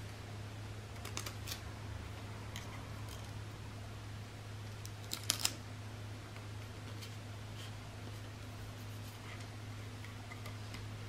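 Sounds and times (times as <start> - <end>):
sticker crinkling and clicking: 1.0 - 1.6, 4.8 - 5.6.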